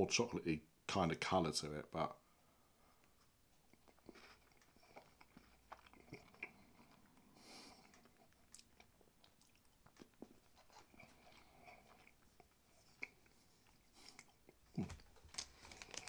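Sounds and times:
chewing crunches: 3.7s - 16.0s.

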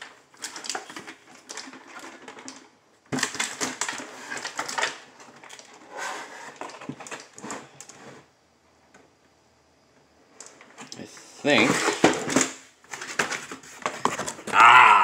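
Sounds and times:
cardboard rustling and scraping: 3.1s - 8.3s, 11.4s - 14.6s.

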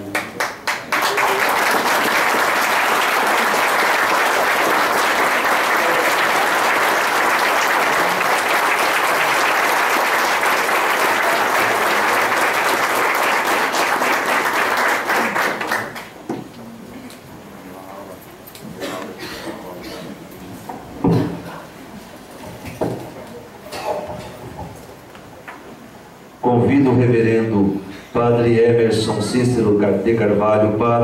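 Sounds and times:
audience applauding: 0.0s - 16.3s.

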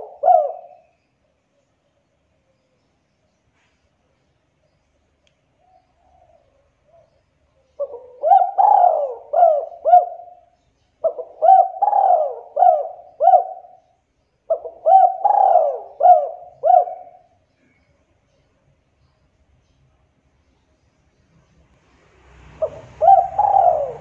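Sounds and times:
dove cooing: 0.0s - 0.9s, 5.6s - 17.7s, 22.6s - 24.0s.

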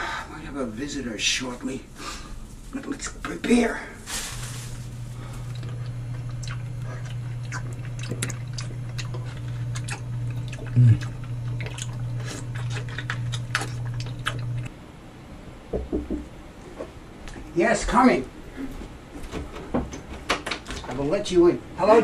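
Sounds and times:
steady low hum: 0.0s - 22.0s
wet chewing and smacking: 5.4s - 14.7s.

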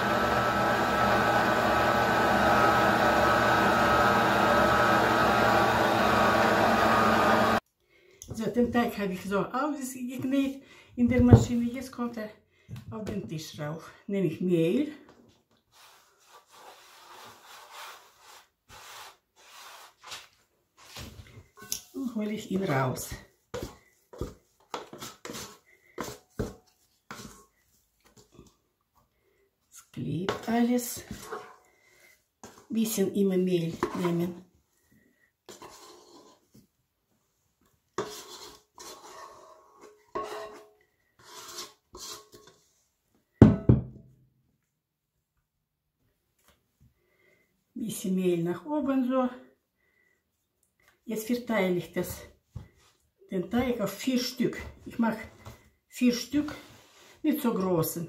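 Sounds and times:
hand rubbing on baking mat: 15.7s - 21.0s
scraper scraping metal bowl: 24.8s - 27.5s, 35.5s - 36.5s, 38.0s - 42.7s.

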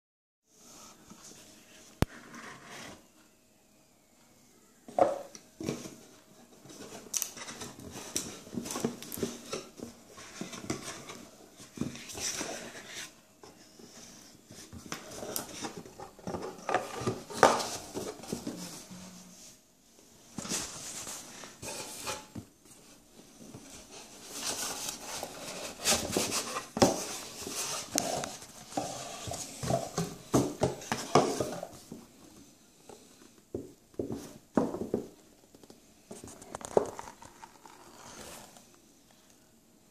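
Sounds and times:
box lid rubbing and scraping: 23.8s - 31.8s.

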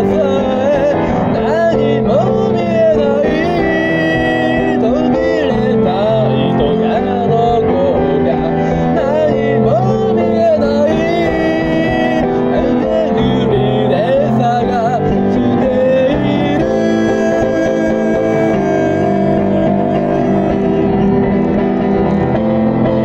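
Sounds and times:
instrumental accompaniment: 0.0s - 23.0s
person singing: 0.0s - 23.0s.

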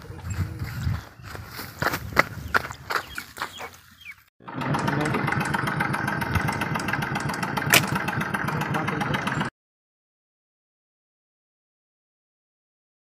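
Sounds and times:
engine-like running noise: 4.4s - 9.5s
sharp click: 6.3s - 8.1s.

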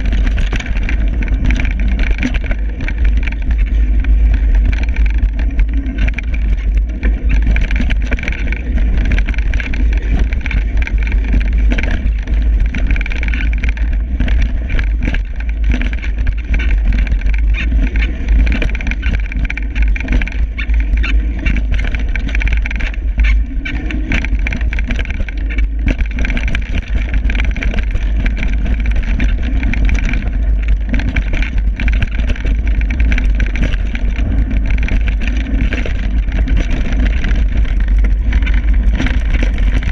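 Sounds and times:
bike rattling and knocking: 0.0s - 39.9s
wind buffeting microphone: 0.0s - 39.9s.

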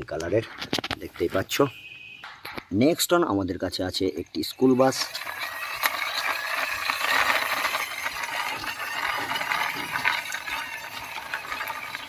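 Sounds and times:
plastic wheels scraping over stone: 4.7s - 12.0s.

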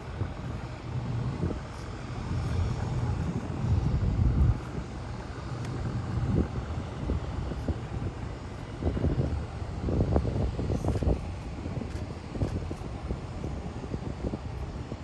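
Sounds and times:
low steady rumble: 0.0s - 15.0s
wind buffeting microphone: 0.0s - 15.0s.

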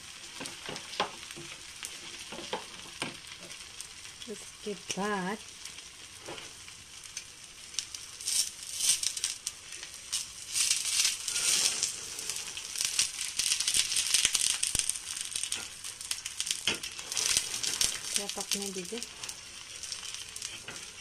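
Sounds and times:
crackling sizzle of frying: 0.0s - 21.0s
metal spatula scraping griddle: 10.5s - 12.9s, 16.6s - 18.4s, 19.1s - 21.0s.

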